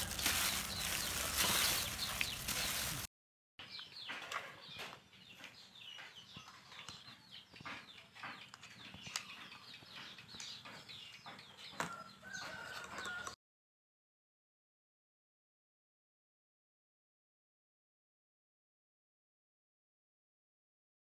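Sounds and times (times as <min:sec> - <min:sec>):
chicks peeping: 0:00.0 - 0:03.1, 0:03.7 - 0:13.2.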